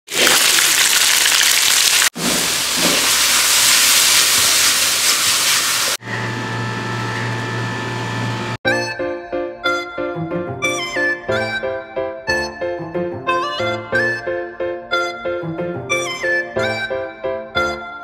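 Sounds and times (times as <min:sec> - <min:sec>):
oil sizzling in a pan: 0:00.1 - 0:06.0.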